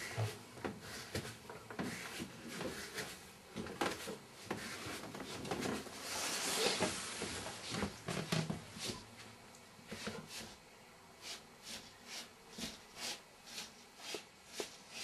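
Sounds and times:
rustling: 0.9 - 9.3.

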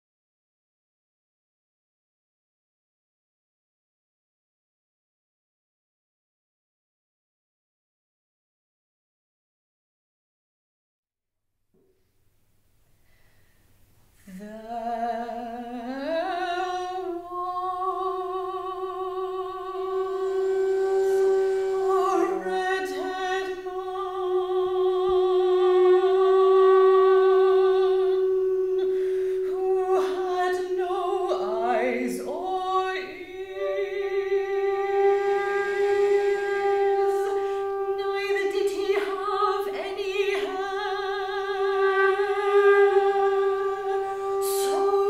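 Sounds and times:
clarinet: 14.3 - 45.0
soprano singing: 14.3 - 45.0
flute: 15.3 - 45.0.

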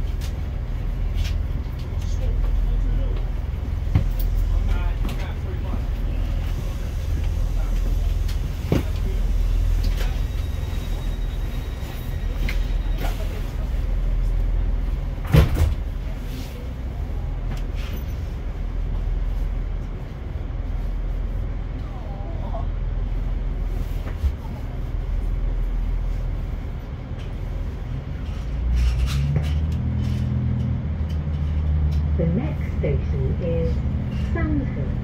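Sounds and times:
diesel train engine: 0.0 - 35.0.

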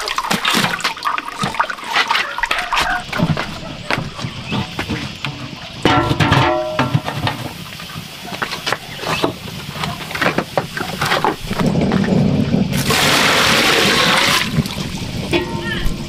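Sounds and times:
metal pot knocking on stove: 5.8 - 7.6, 15.3 - 15.9
metallic ringing: 5.9 - 7.2, 15.3 - 16.0.

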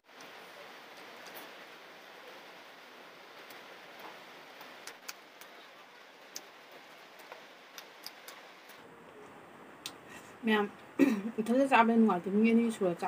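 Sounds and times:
steady hiss: 0.0 - 12.5.

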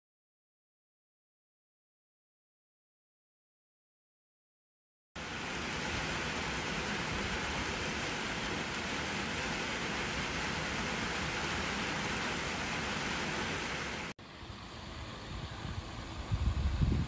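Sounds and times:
rain falling on puddled asphalt: 5.2 - 14.1.

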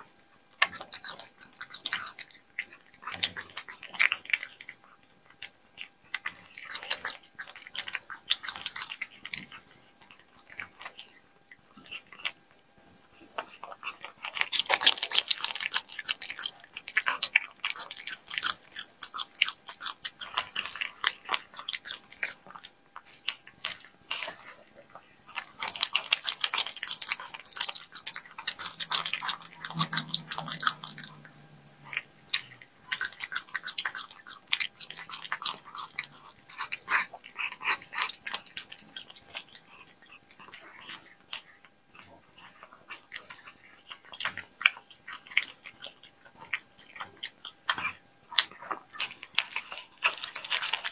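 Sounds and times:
cat chewing and licking meat: 0.0 - 50.9.

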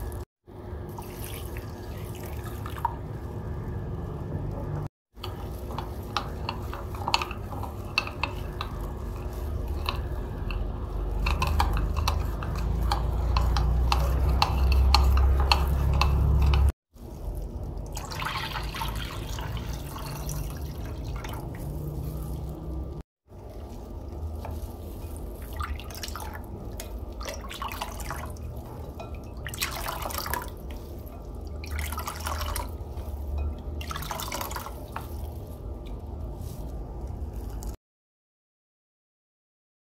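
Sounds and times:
water pouring into plate: 0.9 - 3.2, 10.8 - 36.6
liquid sloshing with spoon: 0.9 - 3.5, 5.2 - 37.8
spoon scraping ceramic plate: 5.2 - 16.7.

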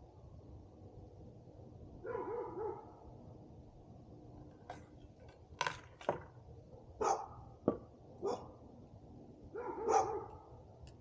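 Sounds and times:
dog barking: 2.0 - 3.0, 7.0 - 7.4, 8.2 - 8.6, 9.5 - 10.5
dog yelping: 7.0 - 7.4, 8.2 - 8.5, 9.6 - 10.4.

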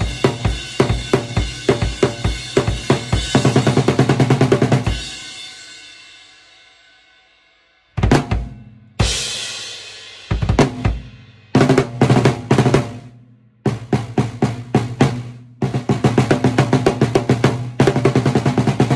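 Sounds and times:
kick and snare drum beat: 0.0 - 5.1, 8.0 - 9.4, 10.2 - 13.1, 13.7 - 18.9
fast drum fill: 0.0 - 5.4, 8.0 - 13.1, 13.7 - 18.9.

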